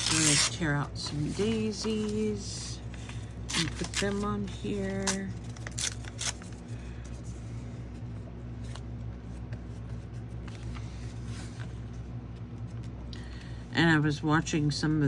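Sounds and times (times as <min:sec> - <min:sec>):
paper tearing and rustling: 0:00.0 - 0:02.3, 0:03.5 - 0:06.6
steady low hum: 0:00.0 - 0:15.0.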